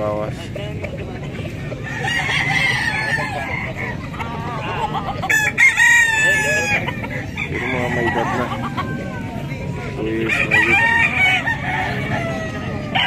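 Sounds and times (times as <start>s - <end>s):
roosters calling in background: 1.3s - 13.0s
rooster crowing: 1.8s - 4.0s, 5.3s - 9.3s, 10.2s - 13.0s.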